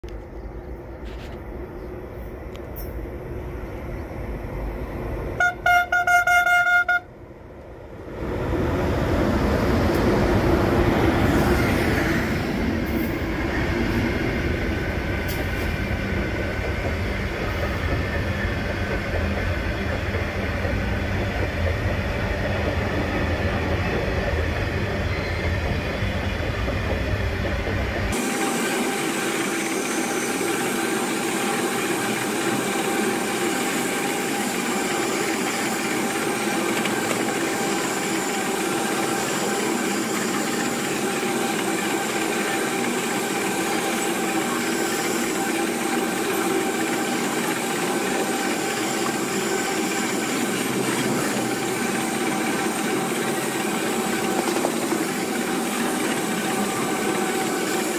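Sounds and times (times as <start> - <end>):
train wagons rumbling past: 0.2 - 57.9
locomotive horn blasts: 5.4 - 7.1.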